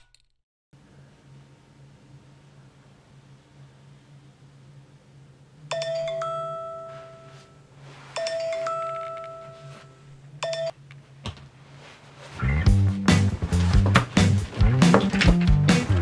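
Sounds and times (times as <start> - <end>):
phone mallet chime tone: 5.7 - 7.6, 8.2 - 10.7.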